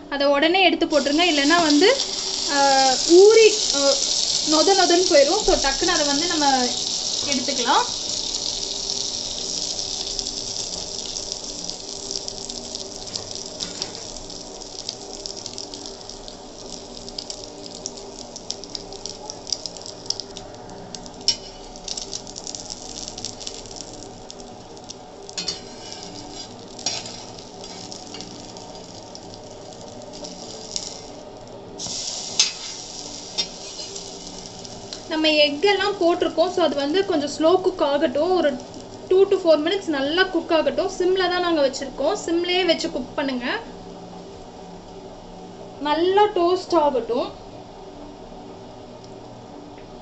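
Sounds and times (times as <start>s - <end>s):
bread sizzling in butter: 0.9s - 41.2s
crackles and pops: 1.6s - 36.9s.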